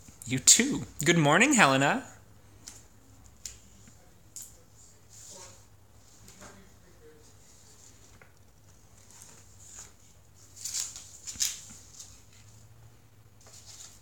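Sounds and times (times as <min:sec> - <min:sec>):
paper sheets rustling: 0:05.1 - 0:12.7, 0:13.4 - 0:14.0.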